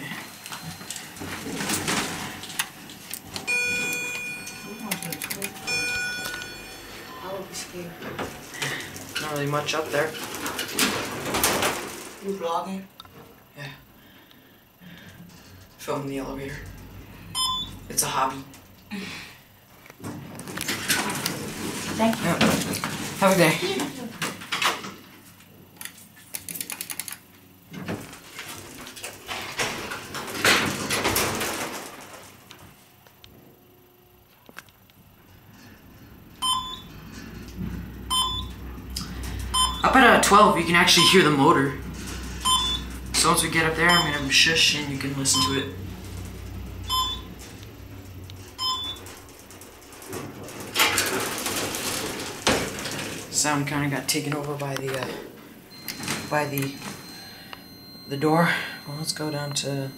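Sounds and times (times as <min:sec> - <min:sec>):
elevator doors sliding: 0:00.0 - 0:12.5, 0:15.2 - 0:18.8, 0:35.2 - 0:57.5
short electronic beeps: 0:17.3 - 0:17.8, 0:36.4 - 0:36.9, 0:38.1 - 0:38.6, 0:39.5 - 0:40.0, 0:40.9 - 0:41.3, 0:42.4 - 0:42.9, 0:43.8 - 0:44.4, 0:45.3 - 0:45.8, 0:46.9 - 0:47.3, 0:48.6 - 0:49.0, 0:55.7 - 0:59.9.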